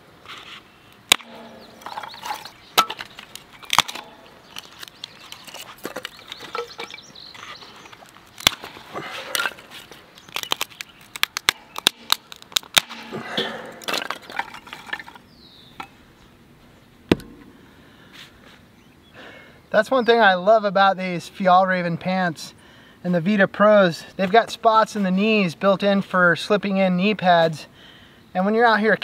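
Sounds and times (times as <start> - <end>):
wood cracking and splintering: 1.1 - 15.2
sharp knock: 17.1 - 17.6.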